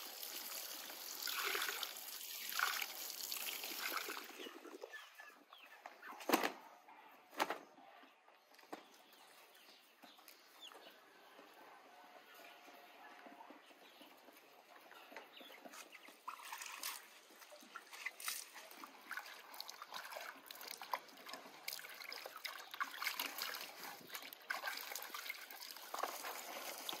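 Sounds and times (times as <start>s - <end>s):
water splashing and trickling: 0.0s - 5.1s, 16.2s - 27.0s.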